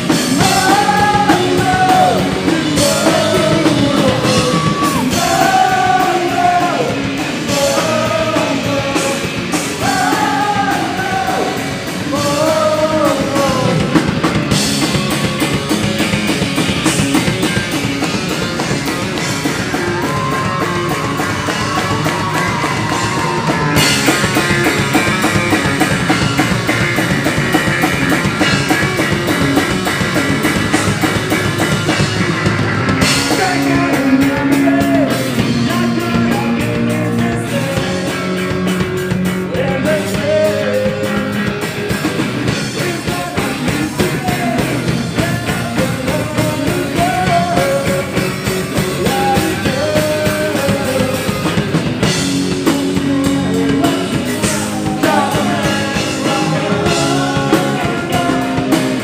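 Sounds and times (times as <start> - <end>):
bass guitar: 0.0 - 59.0
drum kit: 0.0 - 59.0
electric guitars: 0.0 - 59.0
person singing: 0.1 - 14.1, 33.0 - 41.8, 42.5 - 59.0.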